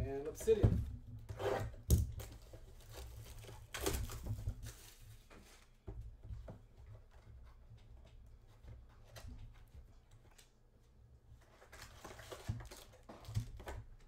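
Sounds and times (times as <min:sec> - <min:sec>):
cardboard and wrapper rustling: 0:01.6 - 0:05.8, 0:11.4 - 0:14.0.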